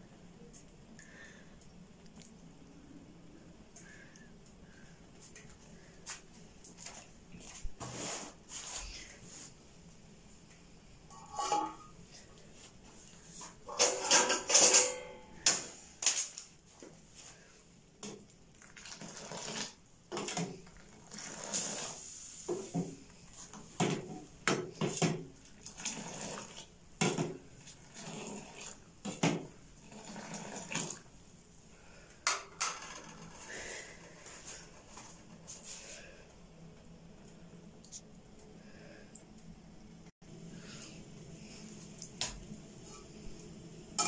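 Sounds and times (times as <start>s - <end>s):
ladle scraping a saucepan: 11.1s - 11.9s.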